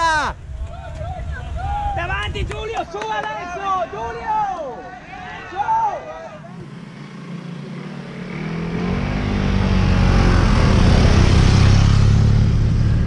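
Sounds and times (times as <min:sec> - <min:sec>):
motorcycle engine passing by: 0:06.2 - 0:13.0.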